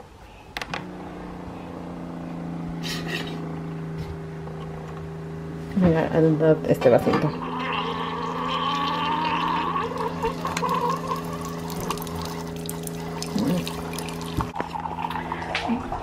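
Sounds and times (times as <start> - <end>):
coffee maker pump humming: 0.6 - 16.0
coffee pouring into mug: 7.4 - 16.0.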